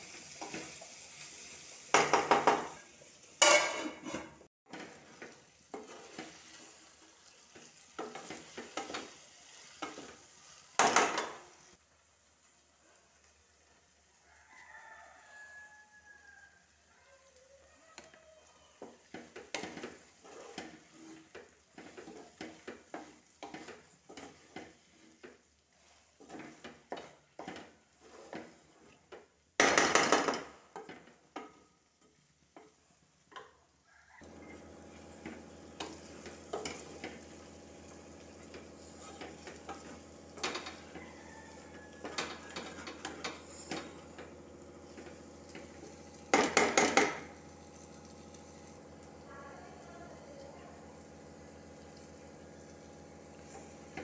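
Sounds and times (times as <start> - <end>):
food sizzling: 0.0 - 54.0
spatula scraping metal pot: 3.4 - 6.8, 18.8 - 29.1, 35.2 - 37.4, 38.2 - 48.8.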